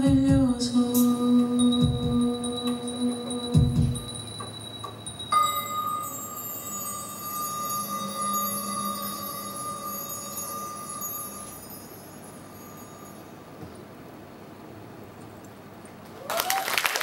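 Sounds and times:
metal chimes ringing: 1.0 - 13.6.

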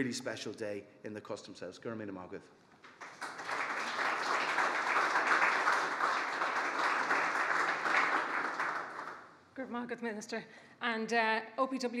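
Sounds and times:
audience applauding: 2.9 - 9.3.

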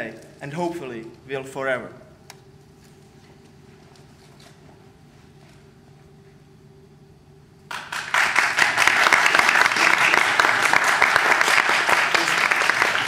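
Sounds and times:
faint room hum: 0.0 - 13.0
audience applauding: 7.7 - 13.0.

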